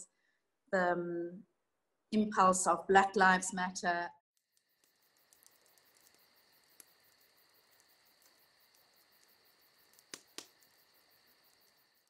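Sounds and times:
small clicks: 4.4 - 12.0.

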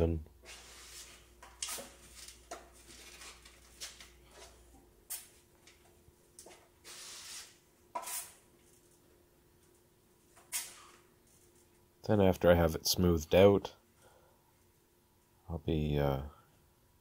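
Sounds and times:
drywall knife scraping: 6.8 - 8.4.

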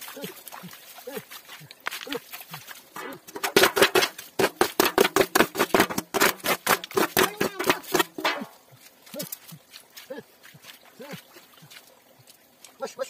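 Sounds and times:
steel plate splashing water: 2.4 - 9.6.

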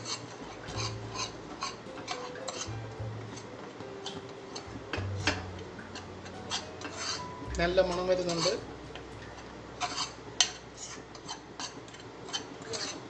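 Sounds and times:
metal spoon scraping metal pan: 0.0 - 3.5, 4.5 - 8.6, 9.8 - 13.0.

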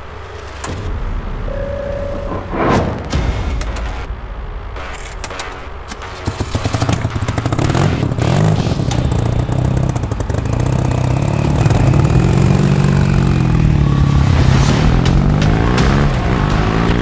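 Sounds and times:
motorcycle engine revving: 6.2 - 17.0.

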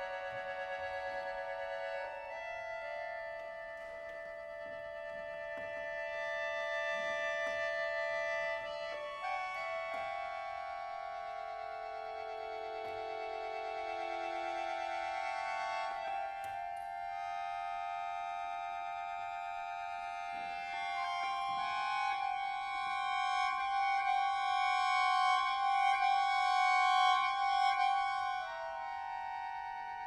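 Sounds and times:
accordion sustained high chords: 7.7 - 30.0.

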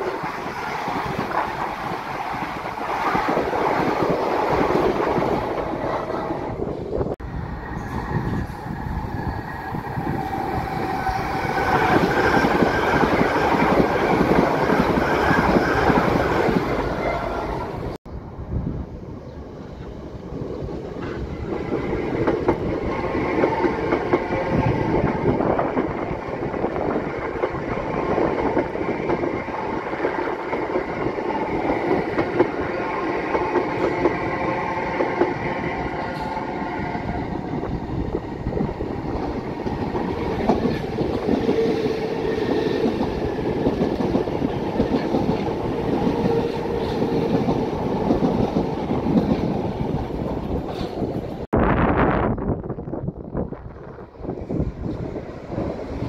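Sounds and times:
electric train rumbling past: 0.0 - 56.0.

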